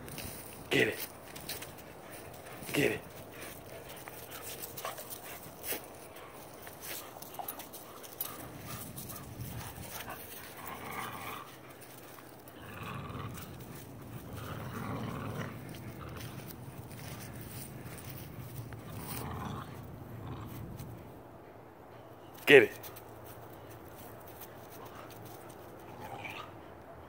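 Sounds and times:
dogs panting: 0.1 - 27.0
dogs growling: 1.6 - 21.1, 24.8 - 26.8.

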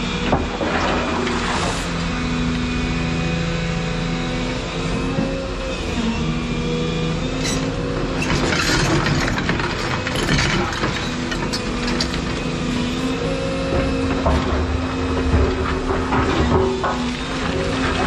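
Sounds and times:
excavator diesel engine running: 0.0 - 18.0
bucket scraping gravel: 0.6 - 2.0.

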